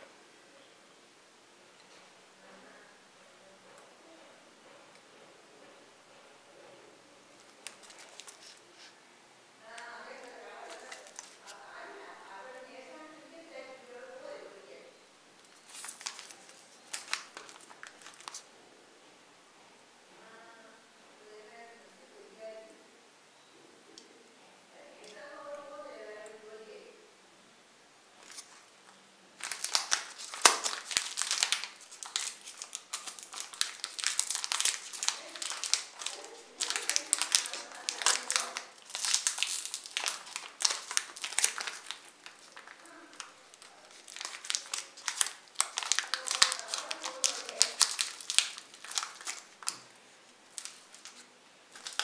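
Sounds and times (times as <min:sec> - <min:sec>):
plastic wrapper crinkling: 0:07.4 - 0:09.0, 0:09.7 - 0:11.7, 0:15.4 - 0:18.5, 0:28.2 - 0:28.7, 0:29.4 - 0:52.0.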